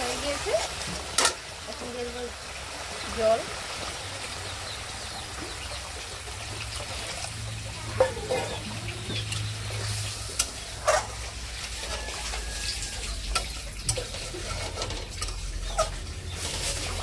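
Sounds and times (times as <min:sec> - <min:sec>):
metal spatula scraping a pan: 0:07.9 - 0:17.0.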